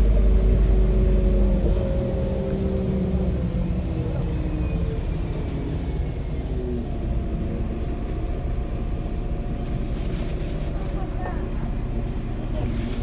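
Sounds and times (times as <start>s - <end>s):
bus engine and road rumble: 0.0s - 13.0s.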